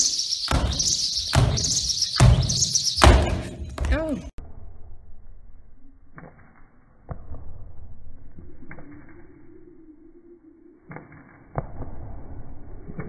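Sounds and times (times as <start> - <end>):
dull impacts on a wooden floor: 0.5 - 4.2
low drone: 4.4 - 13.0.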